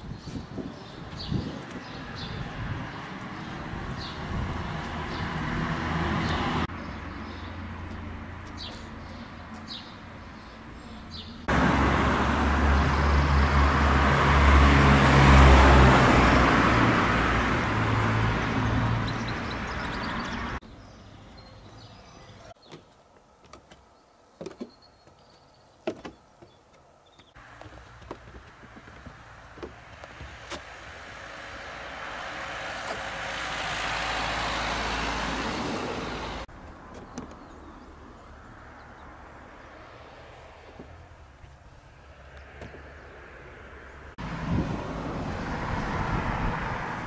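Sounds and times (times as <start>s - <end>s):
car driving past: 11.4s - 20.6s, 29.2s - 36.5s
bird chirps: 23.9s - 27.4s.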